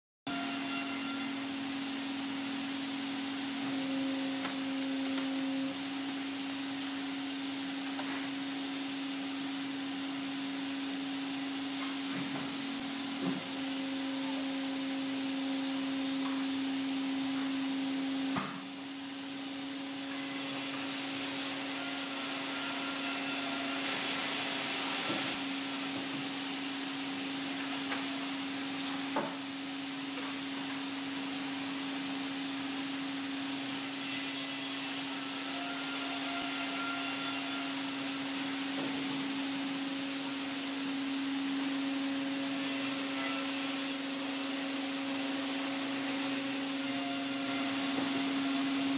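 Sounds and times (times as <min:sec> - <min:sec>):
log splitter humming: 0:02.8 - 0:08.6.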